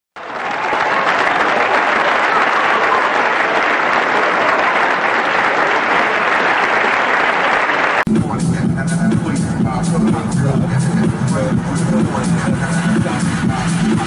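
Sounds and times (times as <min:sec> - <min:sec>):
audience applause: 0:00.2 - 0:08.1.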